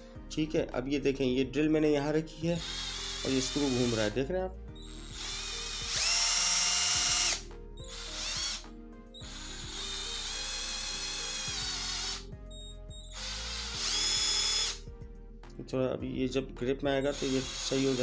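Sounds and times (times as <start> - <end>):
drill motor whining: 2.5 - 8.6, 9.2 - 14.8, 16.9 - 18.0.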